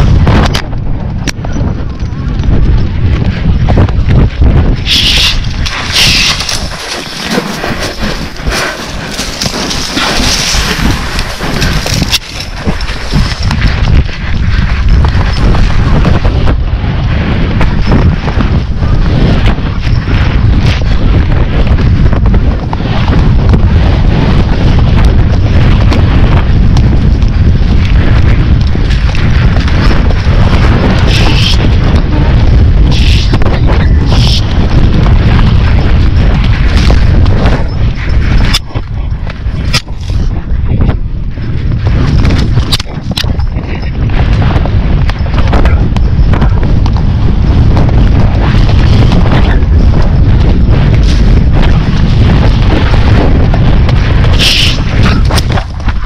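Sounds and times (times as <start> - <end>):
hoof strikes: 0.0 - 56.0
wind rumble on microphone: 0.0 - 56.0
knocks from gallop and tack: 41.9 - 56.0.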